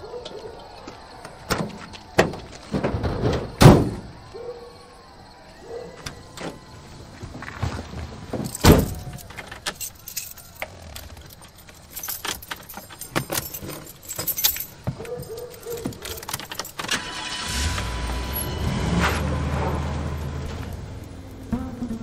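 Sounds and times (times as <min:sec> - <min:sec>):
keys jangling: 0:08.4 - 0:17.2
van engine starting and idling: 0:16.7 - 0:22.0.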